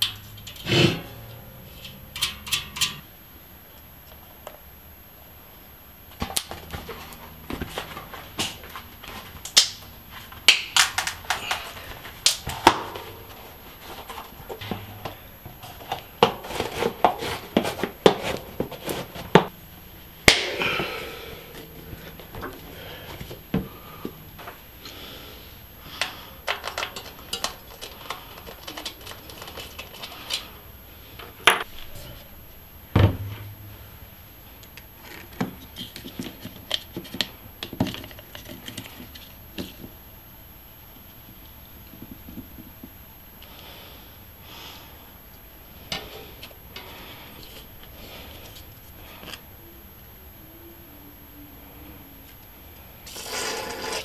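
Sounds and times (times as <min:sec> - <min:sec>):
tools clicking and clinking: 0:01.8 - 0:03.0
dull thump: 0:32.9 - 0:33.6.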